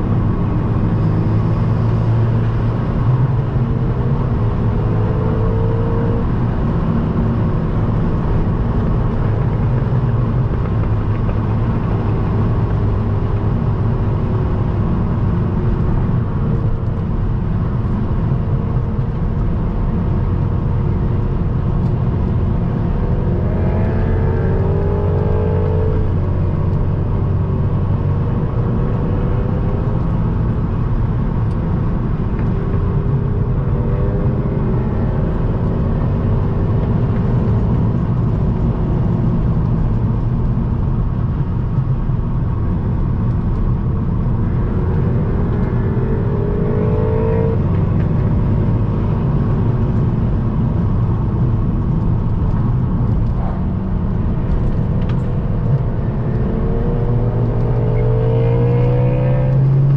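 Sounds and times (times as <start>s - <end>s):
road and wind noise: 0.0s - 59.9s
car engine running: 46.5s - 59.2s.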